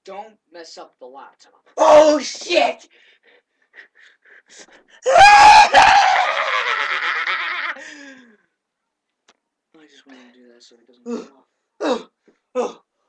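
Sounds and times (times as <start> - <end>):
boy screaming: 1.8 - 2.4, 5.0 - 6.7
faint breaths: 7.8 - 8.6.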